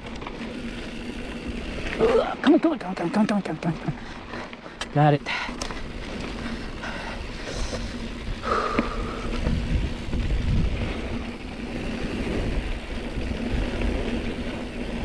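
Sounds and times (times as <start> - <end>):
tyres rumbling on dirt trail: 0.0 - 15.0
wind rushing over microphone: 5.9 - 15.0.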